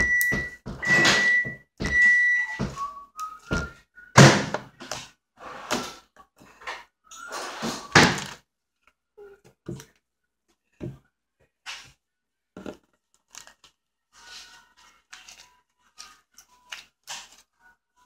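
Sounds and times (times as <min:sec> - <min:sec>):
electronic beeps: 0:00.0 - 0:02.6.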